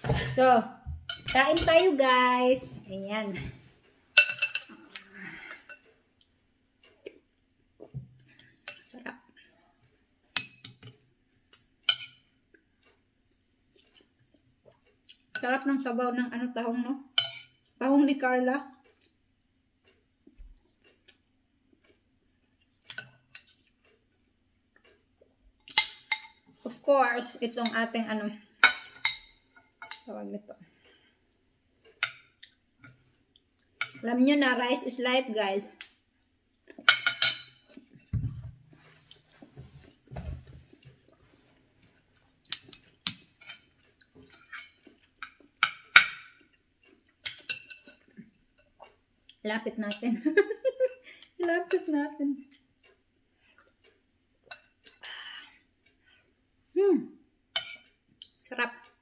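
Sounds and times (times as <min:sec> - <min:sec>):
cutlery clinking on ceramic: 0:04.2 - 0:04.8, 0:10.4 - 0:12.3, 0:17.2 - 0:17.6, 0:25.6 - 0:26.4, 0:28.6 - 0:30.1, 0:36.8 - 0:38.2, 0:42.5 - 0:46.6, 0:47.2 - 0:48.8, 0:57.6 - 0:58.0
chewing rice: 0:12.4 - 0:15.3, 0:18.8 - 0:25.8, 0:43.6 - 0:45.6, 0:46.3 - 0:49.4, 0:52.4 - 0:55.0.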